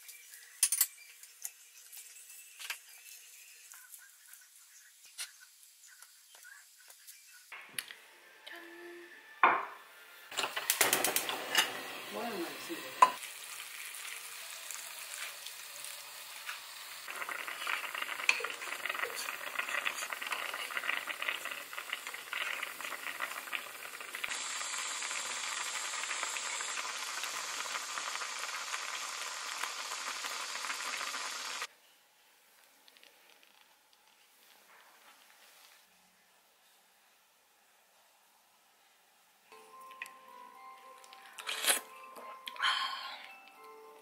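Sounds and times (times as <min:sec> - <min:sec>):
broth boiling and bubbling: 0:10.3 - 0:31.7.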